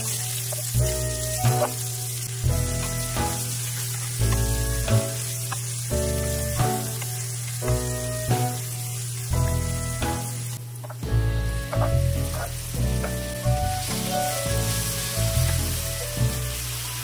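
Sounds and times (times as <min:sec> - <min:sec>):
background music: 0:00.0 - 0:07.0, 0:07.6 - 0:17.0
onions sizzling in oil: 0:00.0 - 0:17.0
spatula stirring in pan: 0:11.7 - 0:13.2.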